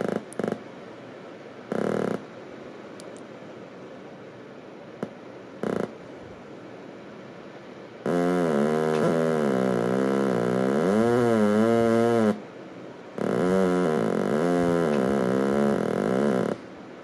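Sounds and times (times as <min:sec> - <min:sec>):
loud wobbling buzzing tone: 0:08.0 - 0:12.4, 0:13.2 - 0:16.6.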